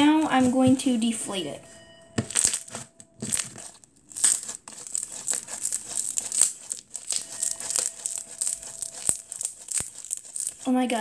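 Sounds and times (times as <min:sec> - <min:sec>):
slime crackling and popping: 0:02.2 - 0:10.7.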